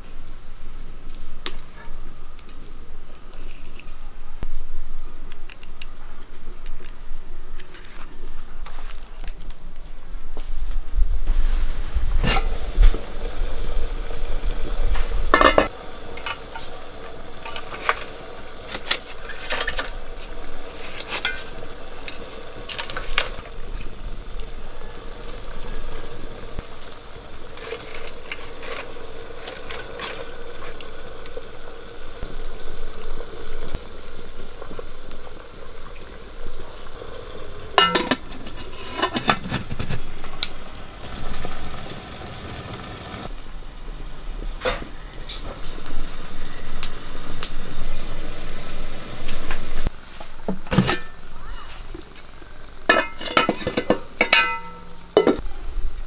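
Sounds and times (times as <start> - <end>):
boiling water sizzling: 0.0 - 56.0
firewood crackling: 0.0 - 56.0
metal pot lid clanking: 15.3 - 16.8, 21.0 - 23.4, 37.8 - 39.9, 50.6 - 51.3, 52.9 - 55.4.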